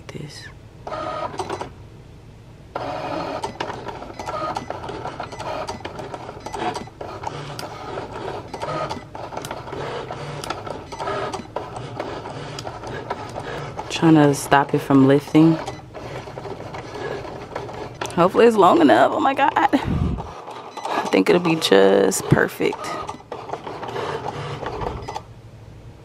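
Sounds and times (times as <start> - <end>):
cutting machine motors whirring: 2.8 - 25.3.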